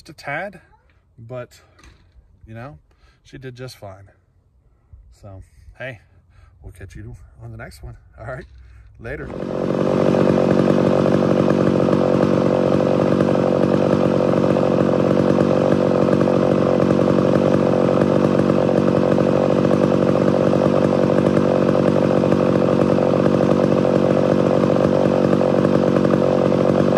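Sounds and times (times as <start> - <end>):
chainsaw running steadily: 8.5 - 26.9.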